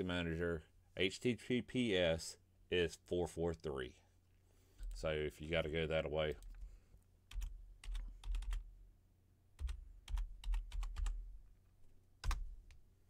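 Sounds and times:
computer keyboard keys clicking: 0:07.3 - 0:08.6, 0:09.6 - 0:11.2, 0:12.2 - 0:12.4.

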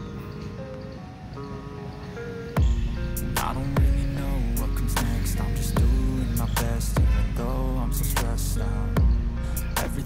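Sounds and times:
electronic music with kick drum: 0:02.6 - 0:10.0.

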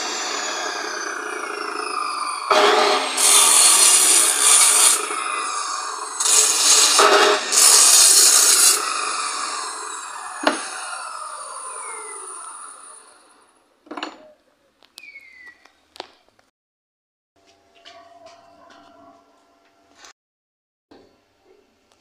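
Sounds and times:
chop saw cutting steel: 0:00.0 - 0:13.5.

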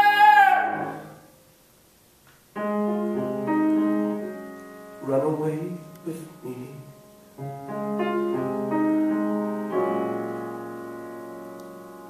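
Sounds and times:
piano playing ballad: 0:02.5 - 0:12.0.

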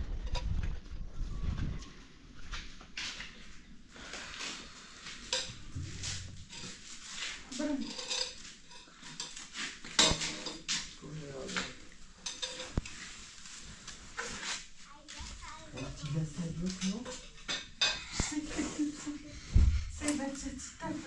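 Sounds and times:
metal pots and dishes clattering: 0:07.8 - 0:10.8, 0:12.2 - 0:12.9, 0:16.8 - 0:18.2.

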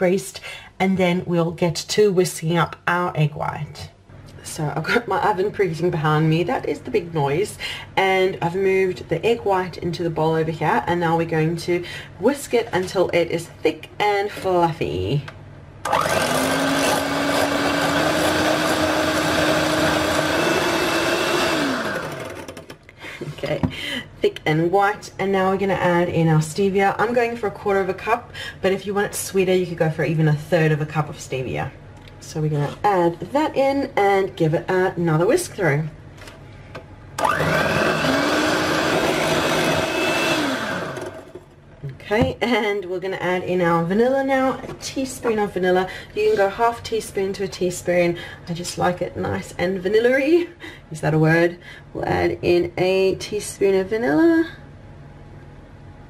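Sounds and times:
electric hand mixer whining: 0:15.9 - 0:22.7, 0:37.2 - 0:41.4.

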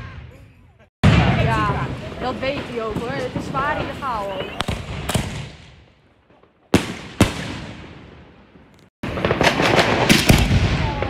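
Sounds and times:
fireworks popping and crackling: 0:01.0 - 0:08.0, 0:08.7 - 0:11.0
firework bangs: 0:01.0 - 0:11.0.

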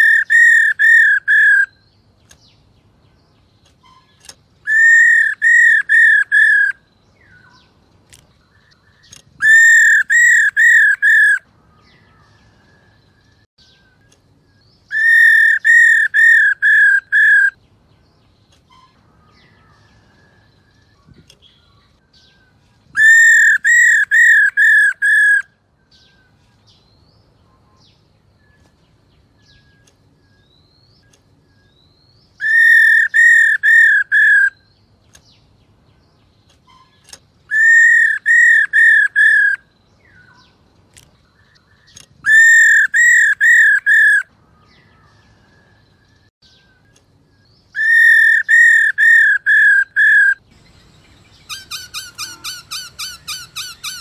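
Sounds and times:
bird whistling call: 0:00.0 - 0:01.8, 0:03.8 - 0:07.5, 0:09.1 - 0:11.4, 0:14.9 - 0:17.6, 0:23.0 - 0:25.5, 0:32.4 - 0:34.7, 0:36.7 - 0:40.2, 0:42.2 - 0:44.3, 0:47.7 - 0:54.0.

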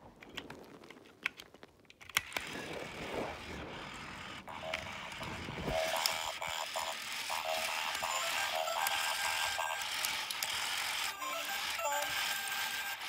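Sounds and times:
toy robot motors ratcheting: 0:03.4 - 0:13.0.

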